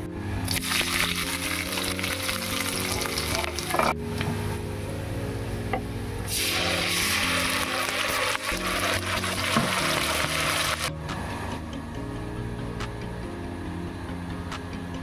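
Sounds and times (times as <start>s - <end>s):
background music: 0.0s - 15.0s
hot oil sizzling: 0.5s - 3.9s, 6.3s - 10.9s.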